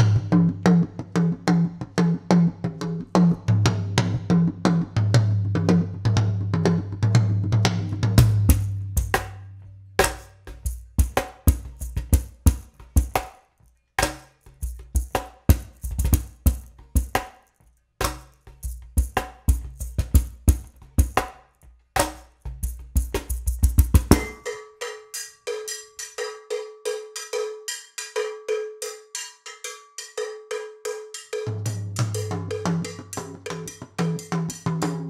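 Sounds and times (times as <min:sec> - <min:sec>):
cajon played by hand: 0:00.0 - 0:13.4, 0:14.0 - 0:17.4, 0:18.0 - 0:21.4, 0:22.0 - 0:24.4
cowbell struck with a stick: 0:10.0 - 0:13.4, 0:14.0 - 0:17.3, 0:18.0 - 0:18.8, 0:24.0 - 0:34.8.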